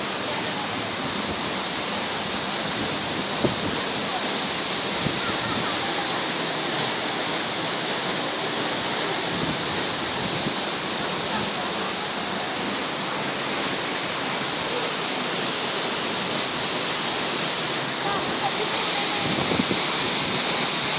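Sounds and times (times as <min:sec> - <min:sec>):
waterfall pouring into pool: 0:00.0 - 0:20.9.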